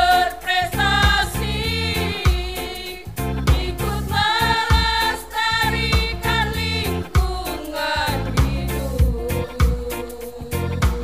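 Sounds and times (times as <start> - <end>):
low thumping beat: 0.0 - 11.0
women's choir singing a march: 0.0 - 11.0.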